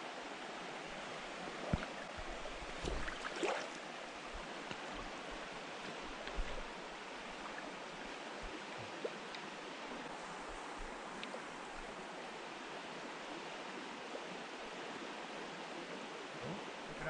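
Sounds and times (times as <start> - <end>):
stream water rushing: 0.0 - 17.0.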